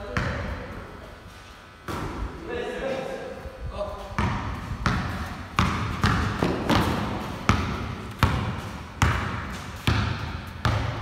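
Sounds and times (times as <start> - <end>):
basketball bouncing on concrete: 0.0 - 0.6, 4.2 - 11.0.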